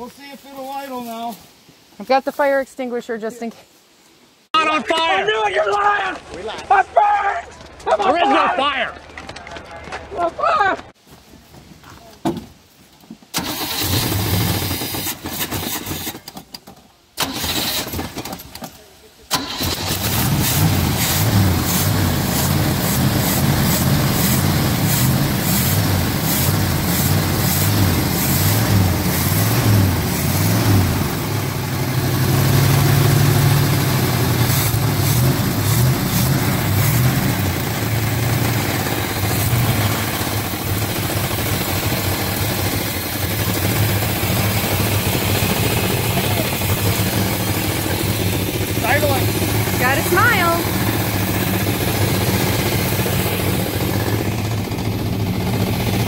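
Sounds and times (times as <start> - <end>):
vee-eight engine idling unevenly: 19.4 - 56.0.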